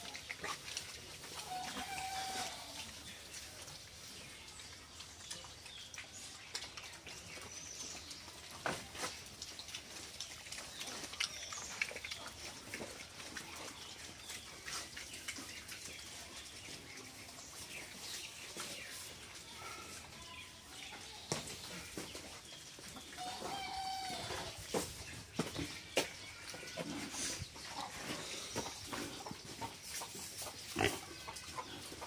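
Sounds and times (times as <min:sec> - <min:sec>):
pigs chomping wetly: 0:00.0 - 0:02.2, 0:03.4 - 0:17.3.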